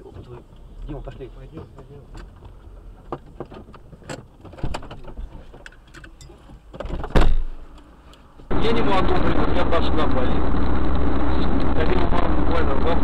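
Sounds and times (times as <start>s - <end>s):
low road rumble: 0.0s - 13.0s
loud thump: 6.9s - 7.5s.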